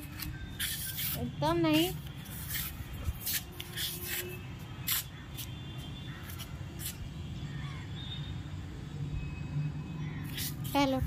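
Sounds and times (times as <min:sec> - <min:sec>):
faint crows cawing: 0:05.1 - 0:06.8, 0:07.4 - 0:08.3.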